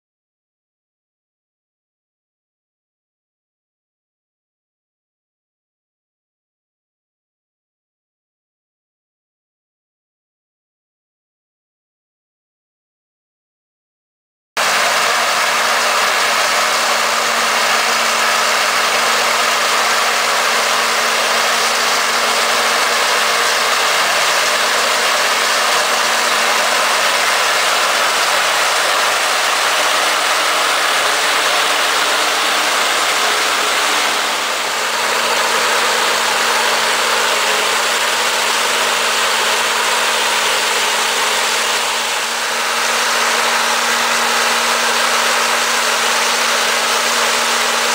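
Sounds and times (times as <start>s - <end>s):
tractor and harvester droning: 14.6s - 47.9s.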